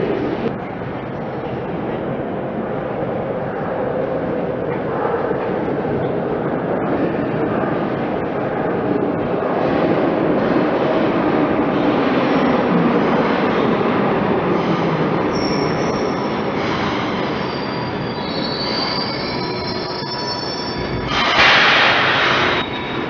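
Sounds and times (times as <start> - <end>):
subway train rumbling: 0.0 - 23.0
train wheels squealing: 15.2 - 23.0.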